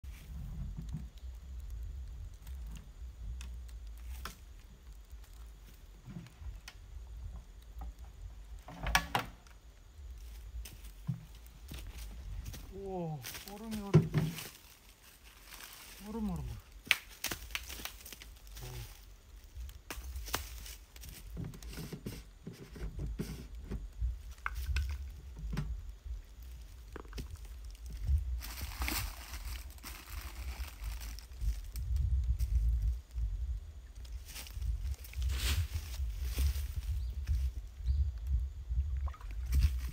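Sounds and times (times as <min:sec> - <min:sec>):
wind rumble on microphone: 0:00.0 - 0:14.4, 0:18.4 - 0:39.9
rustling dry leaves: 0:10.1 - 0:23.5, 0:24.1 - 0:37.8
plastic jug knocking in dry leaves: 0:10.6 - 0:14.8, 0:15.5 - 0:18.3, 0:26.9 - 0:31.8.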